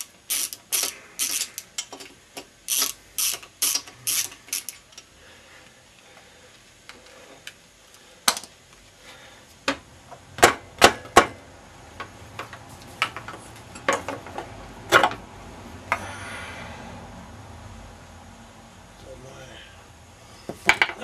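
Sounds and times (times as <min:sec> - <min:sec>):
hand tool clicking on metal: 0:00.0 - 0:02.1.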